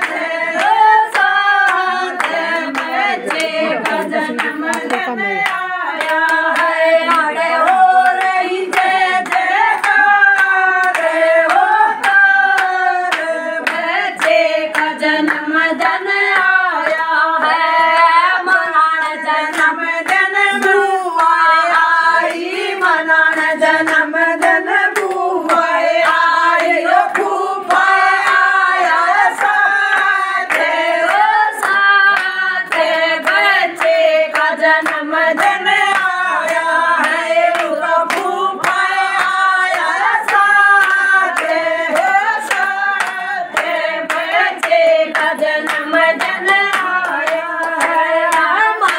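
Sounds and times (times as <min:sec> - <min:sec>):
hands clapping in rhythm: 0:00.0 - 0:48.9
women singing together: 0:00.0 - 0:48.9.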